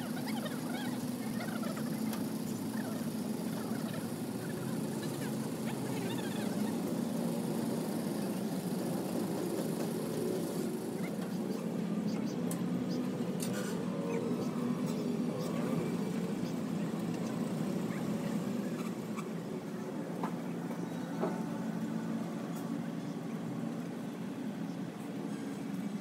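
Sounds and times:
engine hum: 0:00.0 - 0:26.0
birds chirping: 0:09.5 - 0:19.8.

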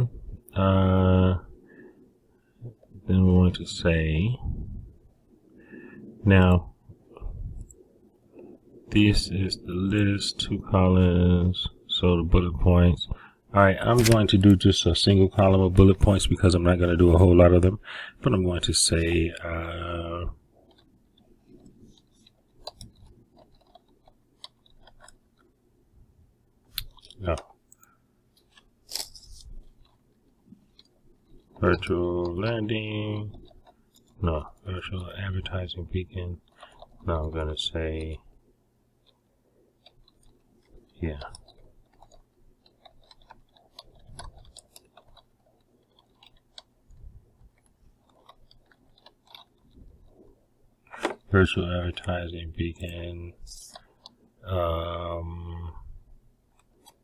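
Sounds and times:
computer mouse clicks: 0:20.6 - 0:25.5, 0:26.7 - 0:35.1, 0:36.4 - 0:37.1, 0:39.8 - 0:51.3, 0:53.6 - 0:54.2, 0:56.5 - 0:57.0.

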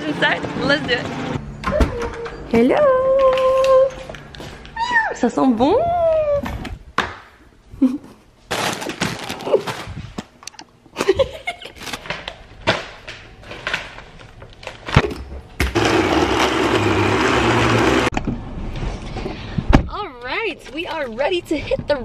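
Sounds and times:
packaging knocks and rustles: 0:08.5 - 0:10.4
blender running: 0:15.6 - 0:18.1.

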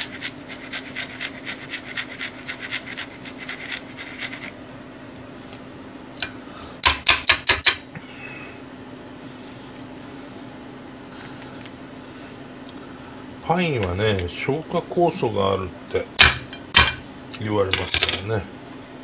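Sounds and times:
grater rasping on pineapple: 0:00.0 - 0:04.6.

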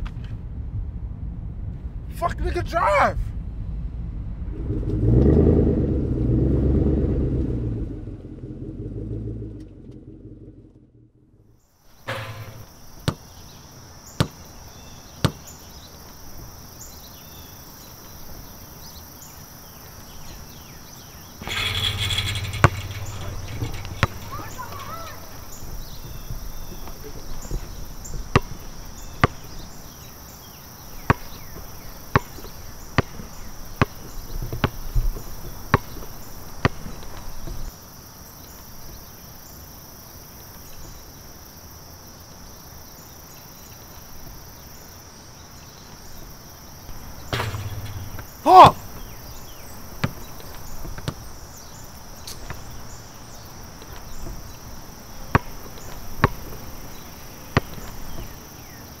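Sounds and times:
sharp hit with ring: 0:12.1 - 0:12.7
basketball bouncing on asphalt: 0:12.1 - 0:13.5, 0:14.2 - 0:15.5, 0:21.4 - 0:30.1, 0:30.9 - 0:37.7, 0:46.9 - 0:58.7
insect chirring: 0:21.3 - 0:37.7.

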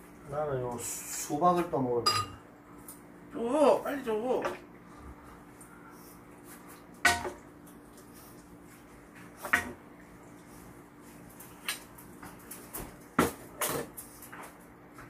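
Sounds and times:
faint steady hum: 0:00.0 - 0:15.0
utensils clinking on pan and bowl: 0:02.1 - 0:02.4.

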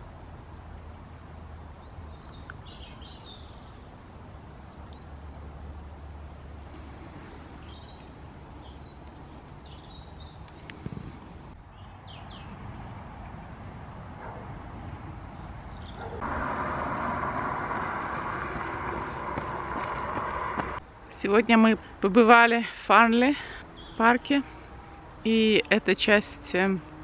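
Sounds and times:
distant traffic hum: 0:00.0 - 0:27.0
small birds chirping: 0:01.5 - 0:13.0, 0:13.8 - 0:16.3, 0:17.5 - 0:27.0
loud even rushing noise: 0:16.2 - 0:20.8.

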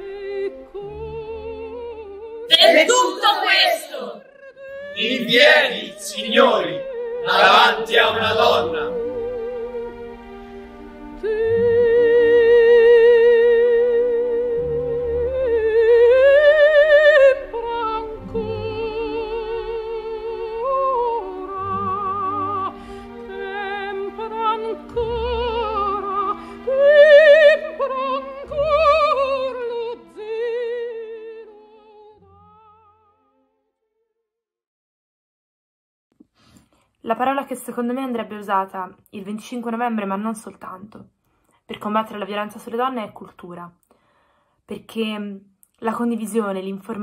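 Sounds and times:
operatic soprano singing: 0:00.0 - 0:09.9, 0:11.2 - 0:33.2.

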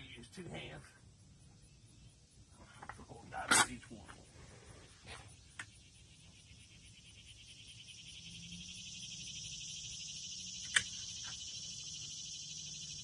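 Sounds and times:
cicada buzzing: 0:03.3 - 0:13.0
sharp click: 0:10.6 - 0:11.4.

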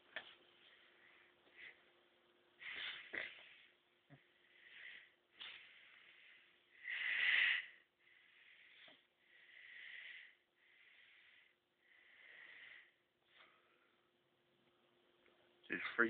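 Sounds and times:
faint steady hum: 0:00.0 - 0:16.0
heavy breathing: 0:02.6 - 0:14.1.

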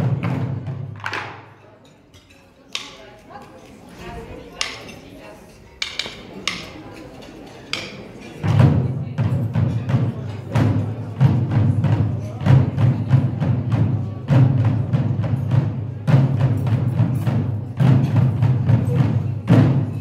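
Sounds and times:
barrel drums playing fast rhythm: 0:07.7 - 0:20.0.

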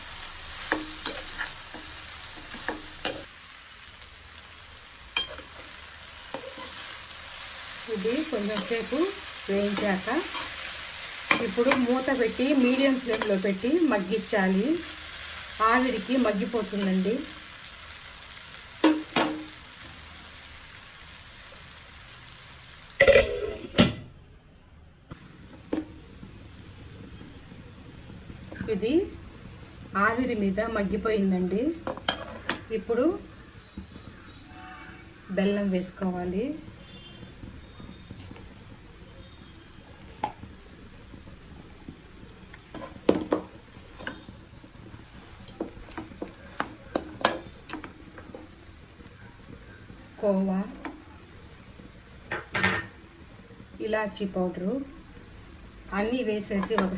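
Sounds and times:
food sizzling in a pan: 0:00.0 - 0:24.1, 0:25.1 - 0:56.9
metal spatula scraping a pan: 0:00.6 - 0:03.3, 0:06.2 - 0:07.0, 0:09.7 - 0:13.5
metal lid clattering: 0:23.0 - 0:24.0.

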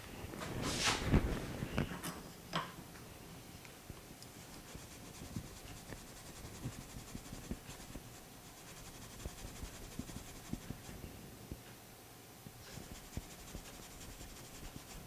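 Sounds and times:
steel wool scrubbing metal: 0:04.5 - 0:10.9, 0:12.7 - 0:15.0.

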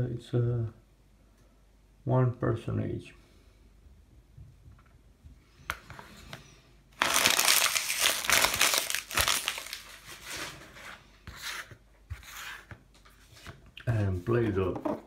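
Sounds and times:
packaging crinkling: 0:07.0 - 0:10.5.

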